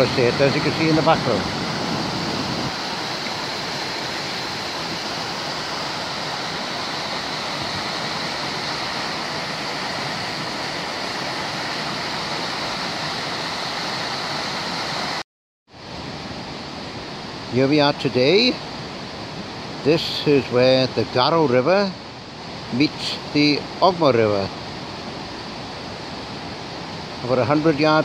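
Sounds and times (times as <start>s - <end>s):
water rushing over a weir: 0.0s - 15.2s.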